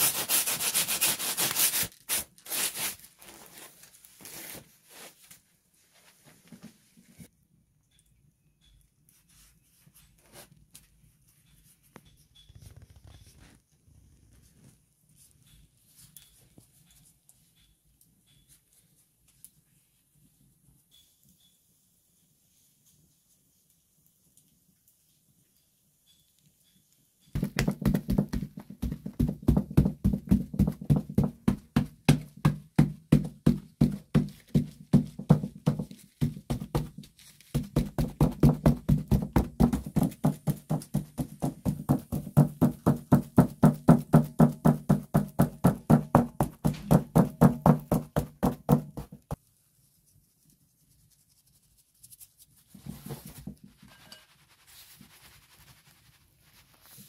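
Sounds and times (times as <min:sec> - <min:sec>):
pastry brush dabbing dough: 0:27.2 - 0:57.0.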